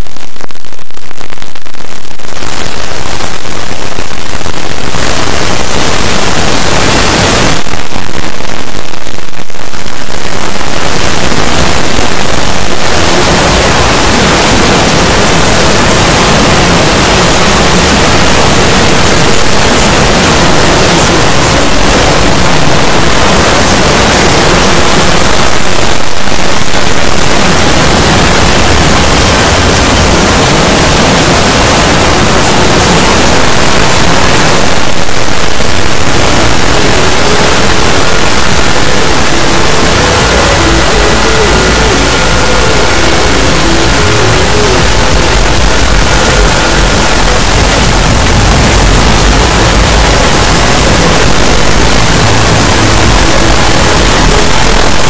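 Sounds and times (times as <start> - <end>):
harsh distorted static noise: 0.0 - 55.0.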